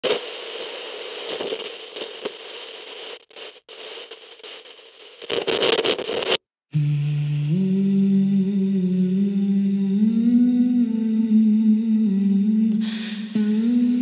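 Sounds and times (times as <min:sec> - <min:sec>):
crackling hissing static: 0:00.0 - 0:06.5.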